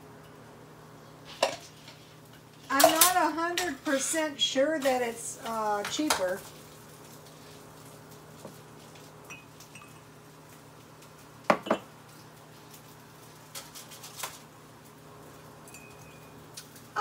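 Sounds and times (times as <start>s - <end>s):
glass and china clinking: 9.3s - 10.1s, 15.7s - 16.3s.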